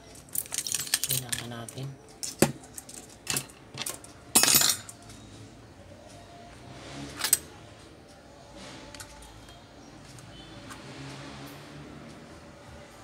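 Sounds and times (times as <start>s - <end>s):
metal tools clinking on workbench: 0.2s - 5.0s.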